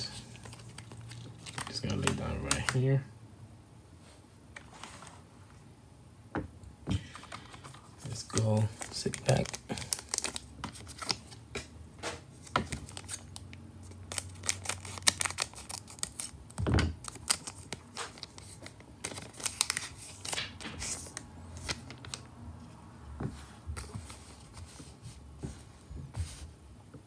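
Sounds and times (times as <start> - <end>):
cards being handled: 0.0 - 2.8, 6.9 - 13.3, 17.0 - 22.2
foil pack crinkling: 0.0 - 2.8, 7.1 - 11.4, 12.4 - 22.2.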